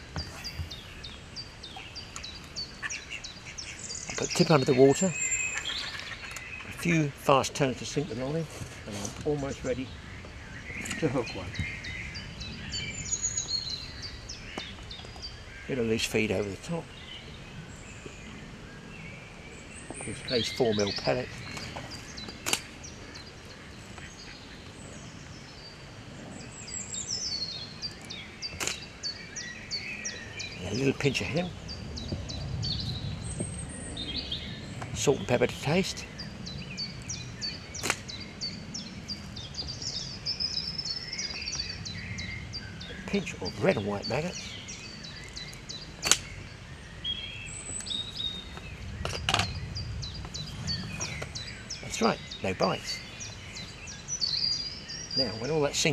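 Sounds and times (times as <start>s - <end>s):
small birds chirping: 0.0s - 55.9s
songbirds singing: 0.0s - 55.9s
catapult snap: 46.0s - 46.3s.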